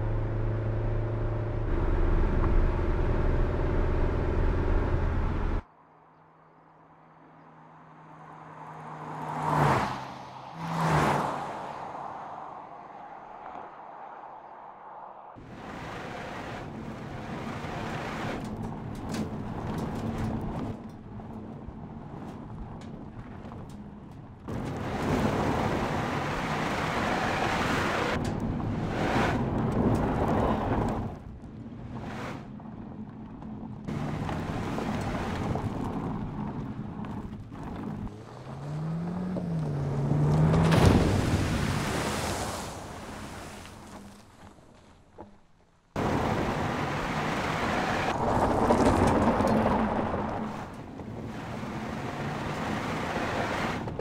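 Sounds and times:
car engine running: 0.0s - 5.6s
tyres and wind rushing: 0.0s - 54.0s
car splashing through water: 39.7s - 44.4s.

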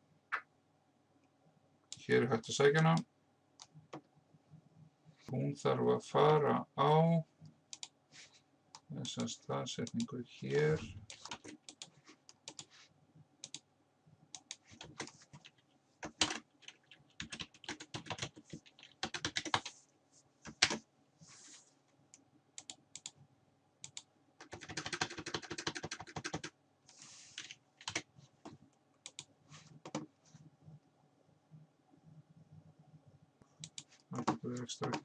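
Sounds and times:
computer keyboard typing: 11.1s - 12.7s, 14.4s - 19.7s, 20.4s - 20.8s, 22.6s - 23.1s, 23.8s - 26.5s, 27.4s - 28.1s, 29.0s - 30.1s, 33.6s - 35.0s.

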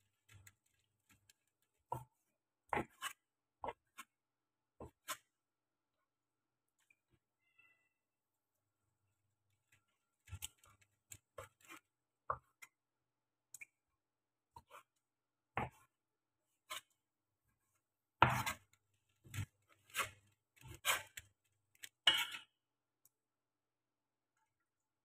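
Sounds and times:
cleaver chopping on plastic board: 18.2s - 18.6s.

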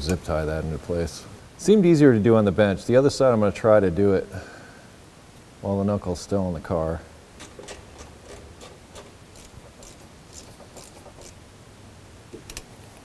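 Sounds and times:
zip tie ratchet ticking: 9.3s - 11.4s.

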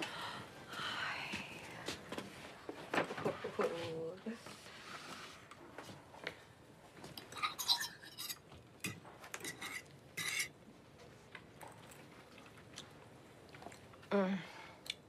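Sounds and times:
fork scraping ceramic plate: 9.4s - 10.5s.

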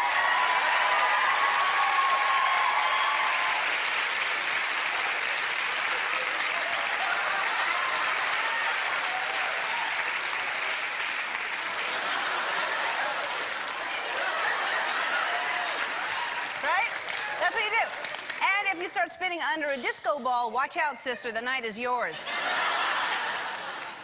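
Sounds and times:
studio audience applauding: 0.0s - 19.2s, 22.3s - 24.0s.

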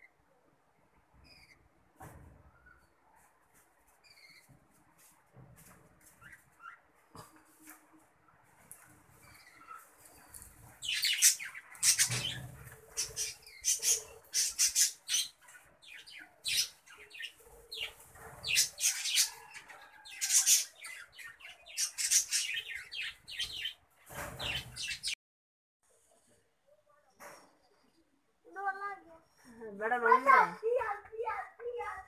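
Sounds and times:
budgerigars chirping and squawking: 9.1s - 25.2s.

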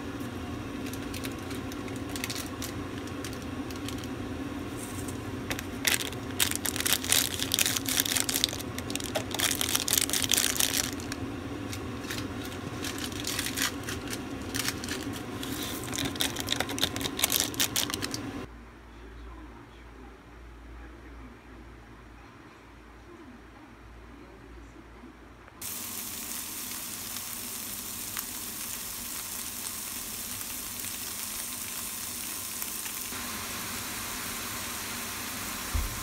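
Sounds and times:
steady low hum: 0.0s - 25.5s
plastic sachets crinkling and tearing: 0.8s - 4.2s, 4.8s - 18.3s, 26.8s - 33.2s
powder shaken into paper cup: 4.7s - 11.2s, 11.8s - 18.2s.

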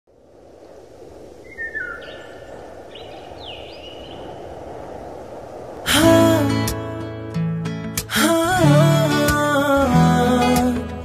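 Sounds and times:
steady rushing hiss: 0.1s - 10.9s
birds calling: 1.4s - 4.6s.

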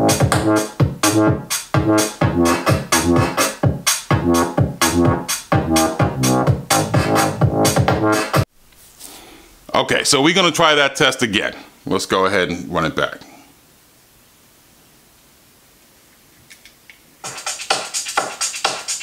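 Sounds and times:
electronic beat music: 0.0s - 8.5s, 17.2s - 19.0s.

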